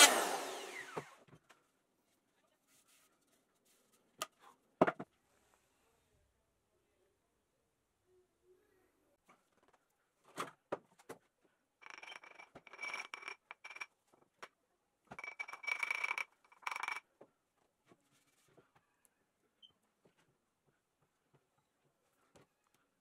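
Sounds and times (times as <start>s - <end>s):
small power tool running: 0.0s - 1.2s.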